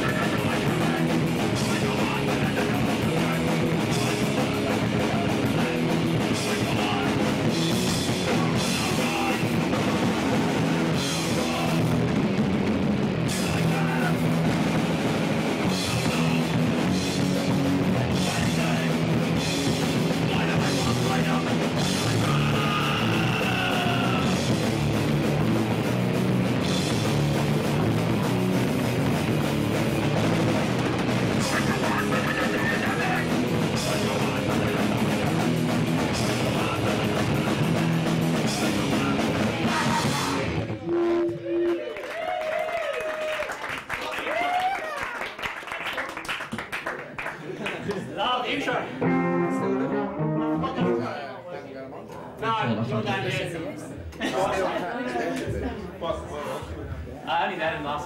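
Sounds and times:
drum kit with crashing cymbals: 0:00.0 - 0:41.1
bass guitar: 0:00.0 - 0:41.8, 0:49.0 - 0:51.4
distorted electric guitar: 0:00.0 - 0:41.8, 0:49.0 - 0:51.4.

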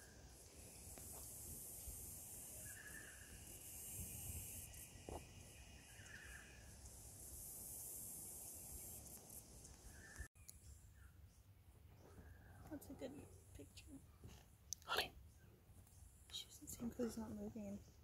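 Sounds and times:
steady high hiss: 0:00.0 - 0:10.6.

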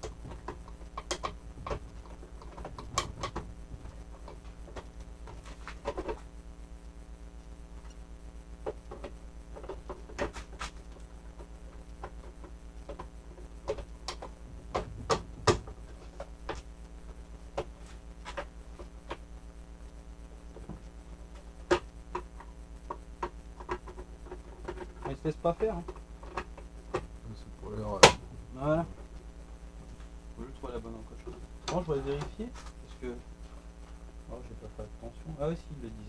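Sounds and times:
plastic parts clicking and knocking: 0:00.0 - 0:06.2, 0:08.6 - 0:16.7
steady electrical hum: 0:00.0 - 0:36.0.

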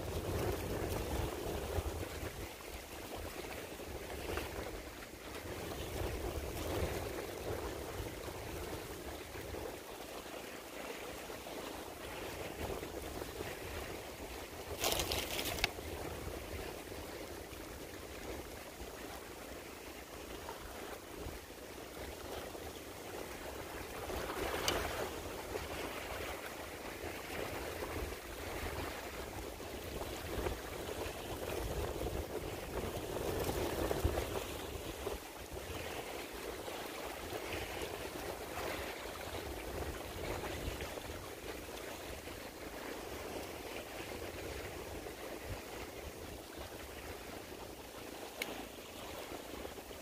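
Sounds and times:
wind buffeting microphone: 0:00.0 - 0:09.9, 0:22.0 - 0:47.9.

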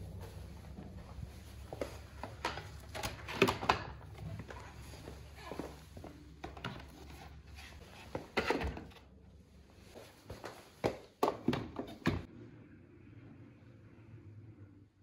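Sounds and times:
footsteps: 0:00.0 - 0:03.2, 0:04.0 - 0:08.4, 0:09.8 - 0:12.3
low steady hum: 0:00.0 - 0:07.7, 0:12.3 - 0:15.0.

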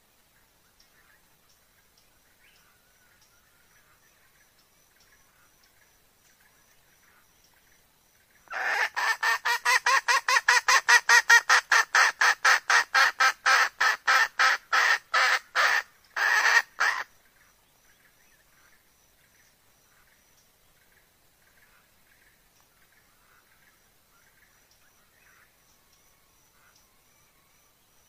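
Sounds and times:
hen clucking: 0:08.5 - 0:17.0.

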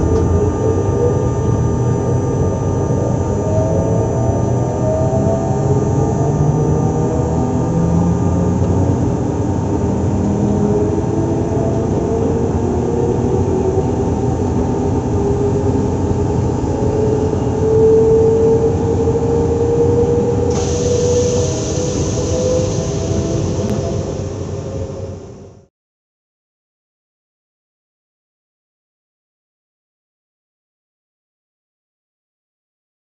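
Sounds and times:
electric train equipment humming: 0:00.0 - 0:25.7.

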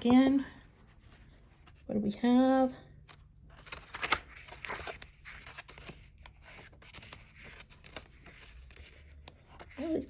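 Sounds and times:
paper pages turning: 0:03.0 - 0:10.0.

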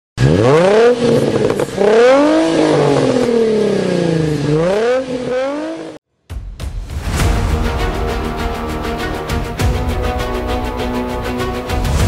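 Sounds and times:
engine revving: 0:00.2 - 0:06.0.

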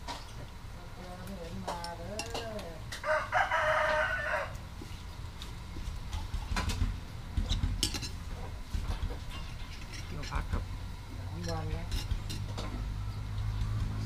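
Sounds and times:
rooster crowing: 0:02.9 - 0:04.6.

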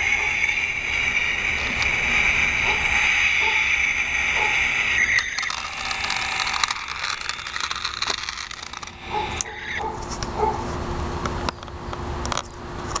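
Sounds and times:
toy car motor whirring: 0:04.4 - 0:09.8
scattered clicks: 0:05.2 - 0:09.6
wheels rattling on concrete: 0:05.4 - 0:10.6.

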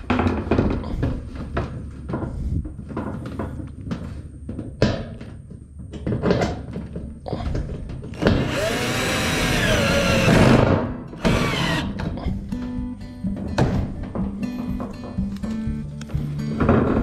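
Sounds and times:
cordless drill driving screw: 0:08.2 - 0:12.0.

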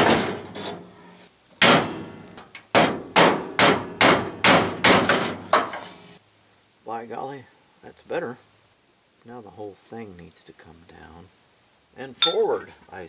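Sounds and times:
hammer blows on metal grille: 0:02.8 - 0:05.8.

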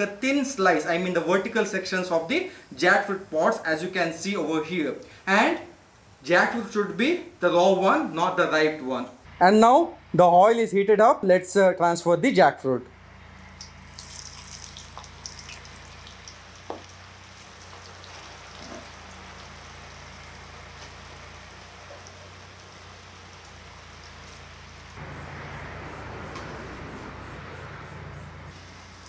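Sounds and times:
food sizzling in hot oil: 0:13.5 - 0:25.0, 0:28.6 - 0:29.0.

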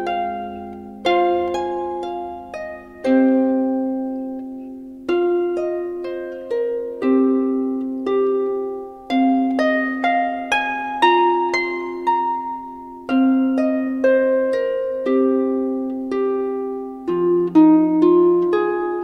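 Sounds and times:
plucked harp-like music: 0:00.0 - 0:19.0.

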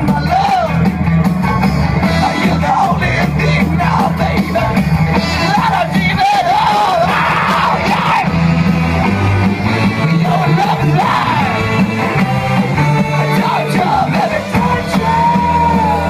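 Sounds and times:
bass notes: 0:00.0 - 0:16.0
live rock band playing: 0:00.0 - 0:16.0
person singing: 0:02.1 - 0:08.3, 0:10.0 - 0:11.8, 0:13.0 - 0:16.0.

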